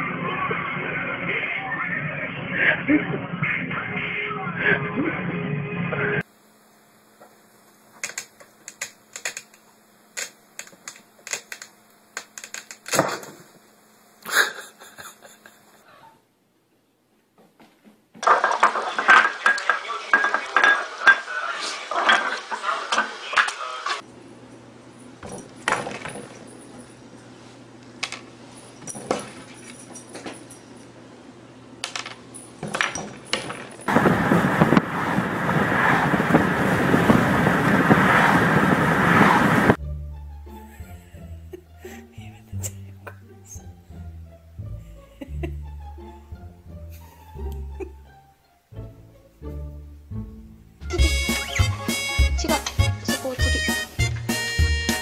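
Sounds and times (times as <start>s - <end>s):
steady low hum: 4.6s - 17.1s, 24.0s - 48.0s.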